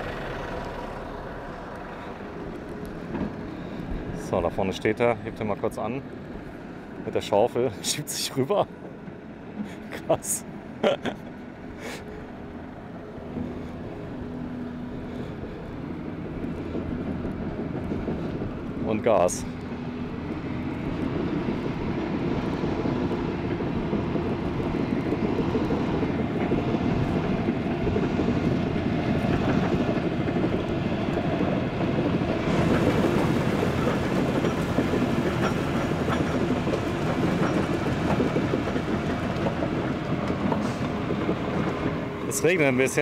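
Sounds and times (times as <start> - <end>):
truck engine under throttle: 0.0 - 7.1, 9.3 - 43.0
excavator engine working: 0.0 - 43.0
steel tracks clanking: 11.2 - 43.0.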